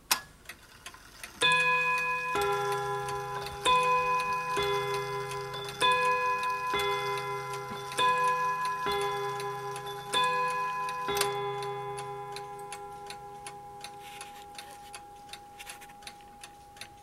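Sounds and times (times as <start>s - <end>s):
clock ticking: 0.1s - 17.0s
clock striking two-note gongs: 1.4s - 16.8s.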